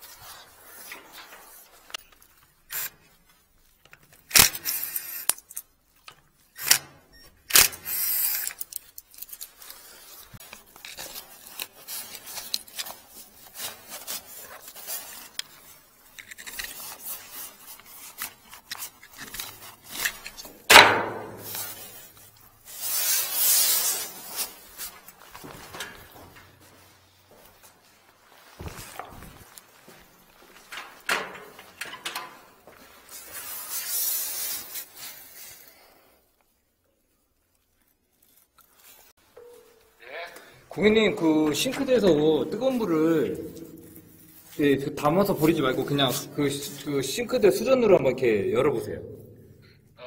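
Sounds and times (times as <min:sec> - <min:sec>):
rustling: 0:08.2 - 0:47.7
tools clicking and knocking: 0:18.7 - 0:21.6, 0:30.7 - 0:32.4.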